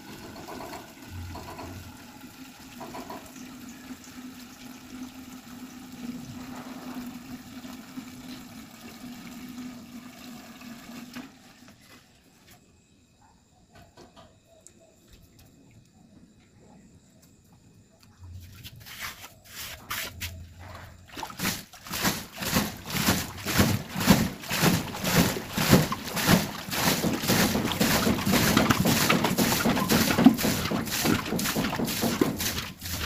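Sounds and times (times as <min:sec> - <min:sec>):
water splashing from hand pump pipe: 0:21.1 - 0:33.0.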